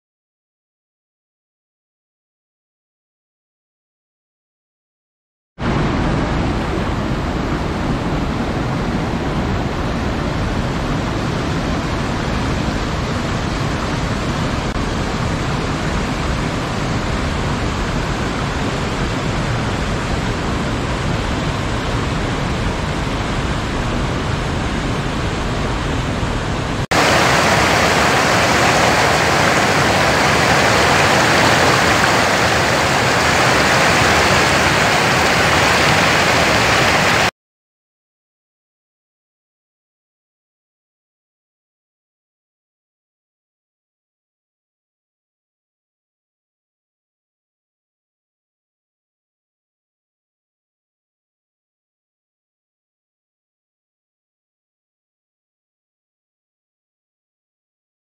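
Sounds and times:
running water rushing: 0:26.8 - 0:37.3.

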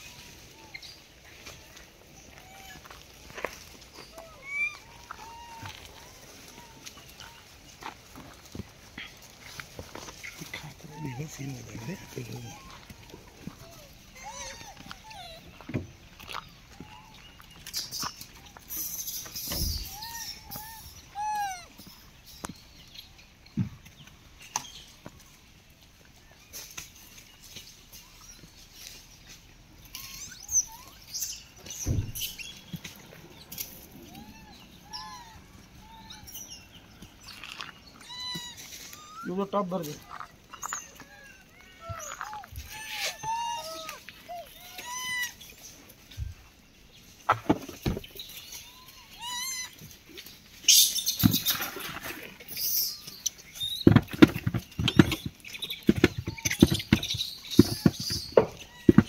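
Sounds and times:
rustles and clicks: 0:00.0 - 0:59.0
chirp-like animal calls: 0:04.0 - 0:07.6, 0:09.0 - 0:23.1, 0:29.8 - 0:46.4, 0:47.8 - 0:59.0
monkey warbling call: 0:04.2 - 0:07.4, 0:10.4 - 0:15.6, 0:19.5 - 0:21.8, 0:34.0 - 0:36.6, 0:37.4 - 0:39.4, 0:40.0 - 0:45.5, 0:48.6 - 0:49.8.

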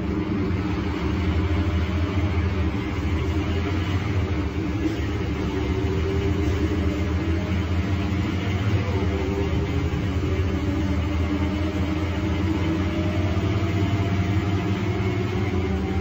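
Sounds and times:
bus diesel engine running: 0:00.0 - 0:16.0.

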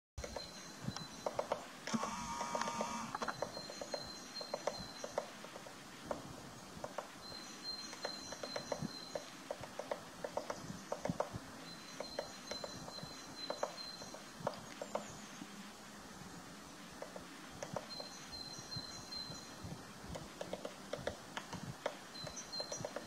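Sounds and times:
woodpecker pecking on wood: 0:01.2 - 0:07.2, 0:07.9 - 0:15.1, 0:17.0 - 0:18.2, 0:20.1 - 0:23.0.

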